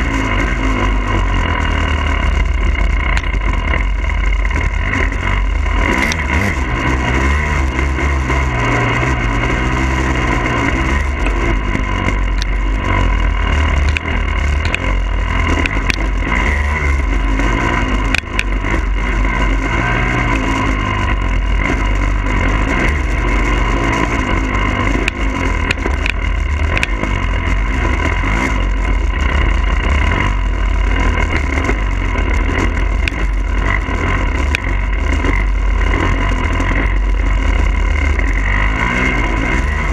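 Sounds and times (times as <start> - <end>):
dirt bike engine revving: 0.0 - 39.9
sharp clicks: 13.8 - 16.2, 24.9 - 27.2, 32.5 - 33.6.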